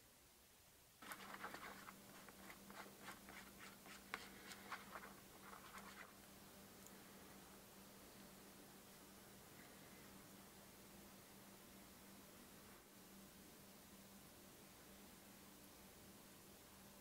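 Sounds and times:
brush scraping: 0:01.0 - 0:06.2.

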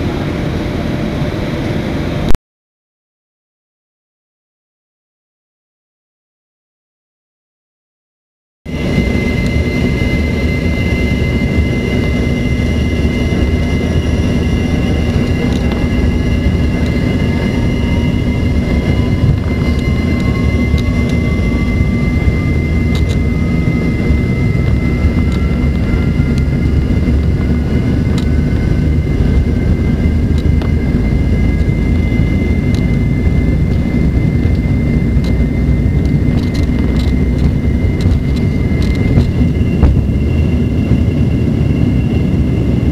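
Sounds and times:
jet engines rumbling and whining: 0:00.0 - 0:02.4, 0:08.7 - 0:42.9
rising engine tone: 0:08.7 - 0:42.9.

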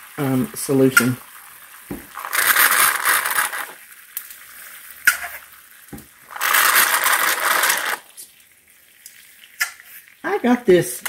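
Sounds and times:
meat sizzling: 0:00.0 - 0:11.0.

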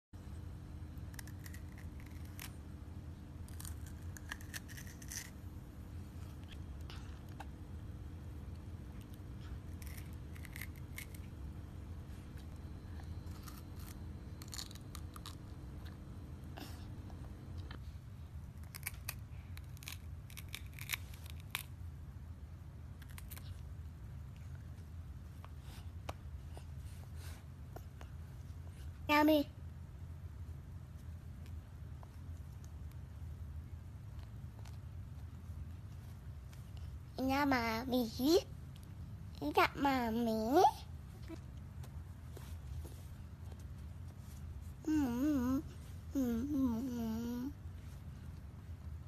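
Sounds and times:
low hum: 0:00.2 - 0:49.0
child crunching raw vegetable: 0:01.0 - 0:02.6, 0:03.4 - 0:05.4, 0:09.0 - 0:11.4, 0:13.0 - 0:16.0, 0:18.5 - 0:21.8, 0:23.0 - 0:23.6.

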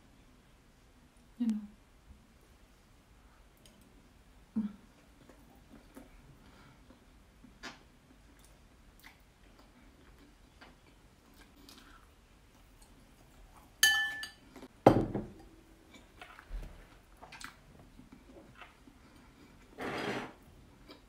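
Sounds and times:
dish clinking: 0:13.8 - 0:14.4.

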